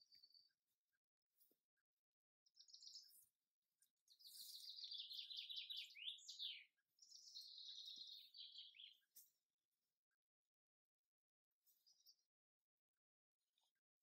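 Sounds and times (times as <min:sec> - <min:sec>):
small songbird trilling: 0:04.2 - 0:09.0.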